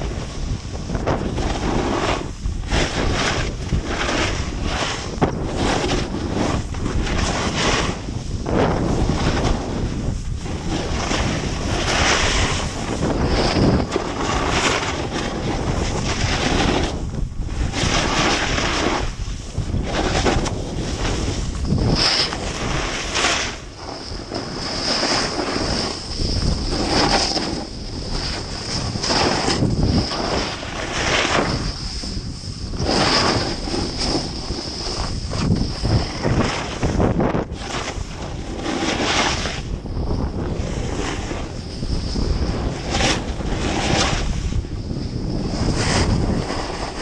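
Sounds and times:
ski edges scraping snow: 0:00.0 - 0:47.0
wind rushing over microphone: 0:00.0 - 0:47.0.

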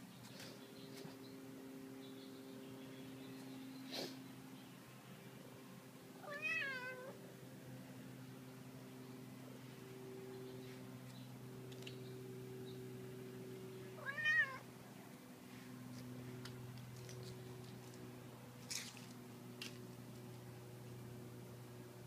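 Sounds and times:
cat meowing: 0:06.2 - 0:07.2, 0:14.0 - 0:14.6.

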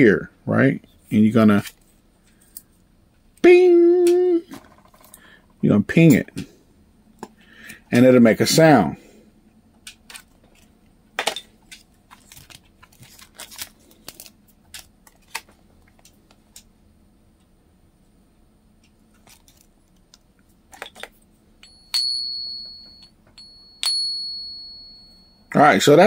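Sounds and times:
plastic packaging crinkling: 0:12.1 - 0:16.2
silver coin ringing ping: 0:21.6 - 0:25.6.

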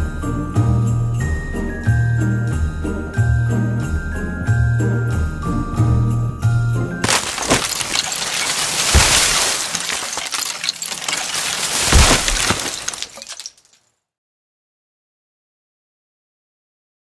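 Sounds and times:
crash of shattering and clattering: 0:07.0 - 0:13.7.

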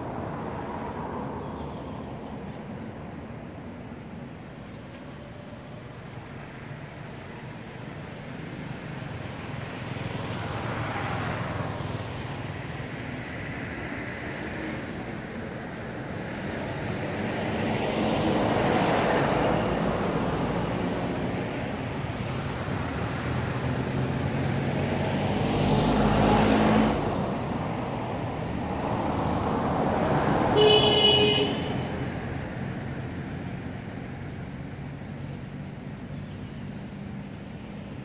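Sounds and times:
road traffic passing: 0:00.0 - 0:38.0
short horn toot: 0:30.6 - 0:31.9.

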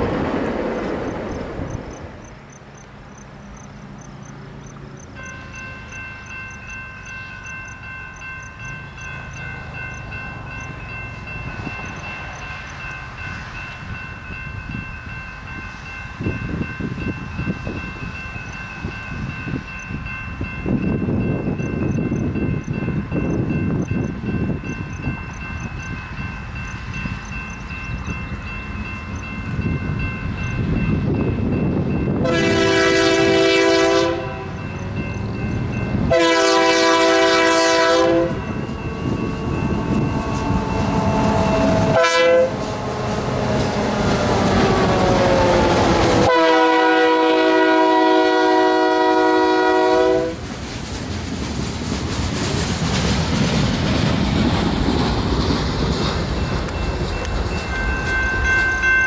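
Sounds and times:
locomotive engines rumbling: 0:00.0 - 0:59.0
wheel and rail noise: 0:00.0 - 0:59.0
locomotive air horn: 0:32.2 - 0:34.6, 0:36.1 - 0:38.5, 0:40.3 - 0:42.8, 0:45.4 - 0:50.4.

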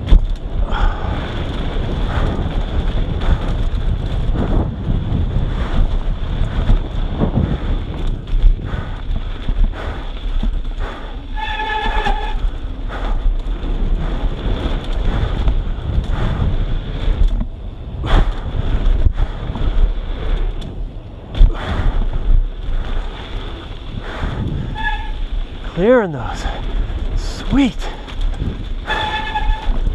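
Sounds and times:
bike knocking over bumps: 0:00.0 - 0:23.9
wind buffeting microphone: 0:00.0 - 0:29.9.

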